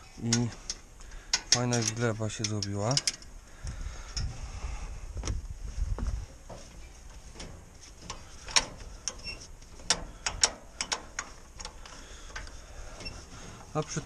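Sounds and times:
metallic clicks and clinks: 0.2 - 3.3.

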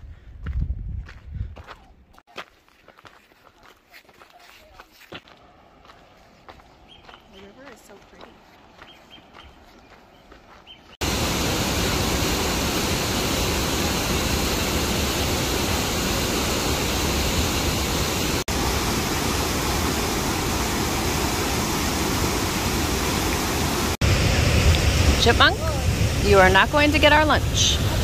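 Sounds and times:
waterfall rushing: 11.0 - 28.0.

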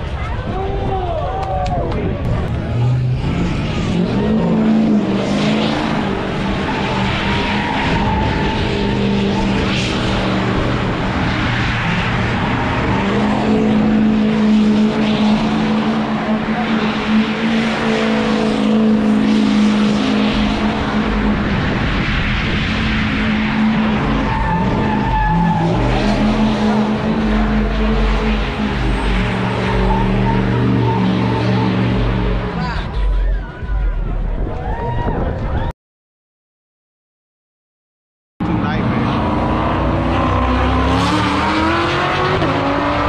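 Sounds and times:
truck engine revving: 1.8 - 34.6, 38.4 - 43.0.

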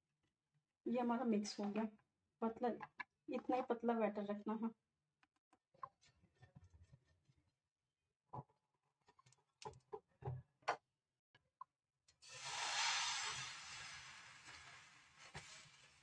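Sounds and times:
batter sizzling in pan: 12.2 - 16.0.

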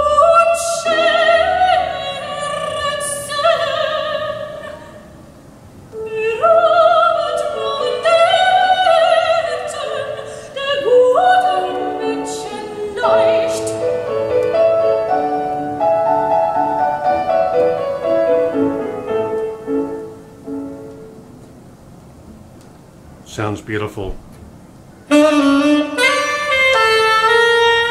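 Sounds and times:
piano accompaniment: 10.8 - 22.4, 25.1 - 27.9.

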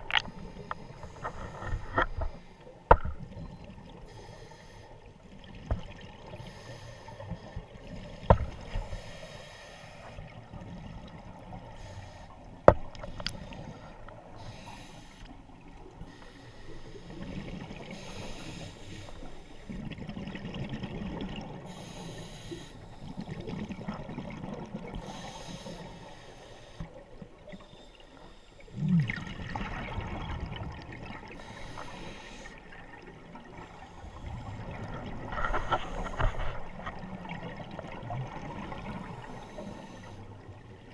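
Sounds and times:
hissing regulator inhalations: 13.5 - 15.3, 17.9 - 19.6, 21.7 - 23.2, 25.0 - 26.9, 31.3 - 32.7.

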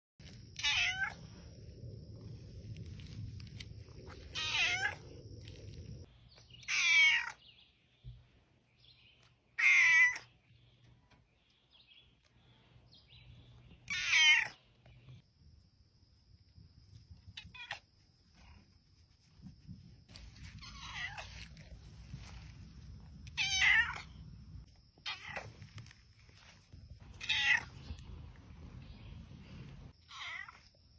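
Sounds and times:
cat meowing: 0.6 - 1.2, 4.4 - 5.0, 6.6 - 7.4, 9.6 - 10.3, 13.8 - 14.6, 20.6 - 21.4, 23.2 - 24.2, 25.0 - 25.5, 27.2 - 27.8, 30.0 - 30.7.

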